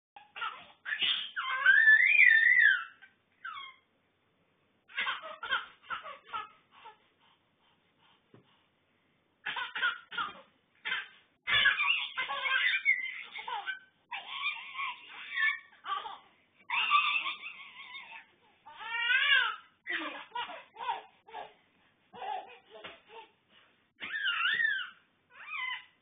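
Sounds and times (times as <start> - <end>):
baby squealing: 0.3 - 3.9, 9.5 - 21.0, 24.0 - 26.0
baby giggling: 4.9 - 6.6, 9.5 - 18.3.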